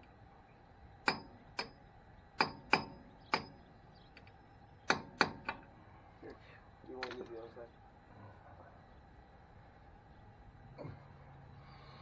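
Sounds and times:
metal tool tapping on metal: 1.0 - 1.8, 2.4 - 3.6, 4.2 - 5.7.

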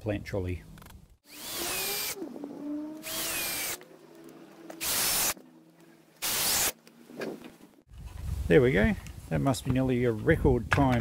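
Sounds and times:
power drill driving screws: 1.2 - 3.8, 4.7 - 5.4, 6.2 - 6.8.

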